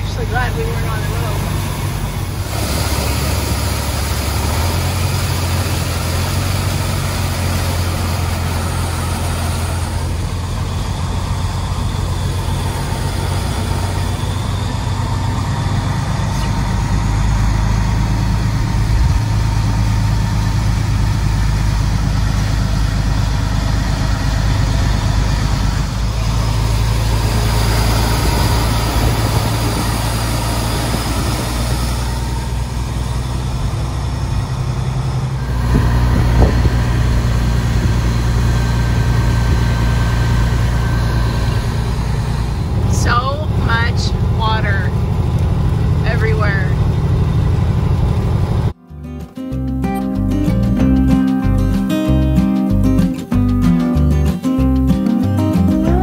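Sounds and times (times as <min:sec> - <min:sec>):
water spraying off tyres: 0:00.0 - 0:43.2
heavy rain on truck cab: 0:00.0 - 0:48.8
truck engine running: 0:00.0 - 0:56.0.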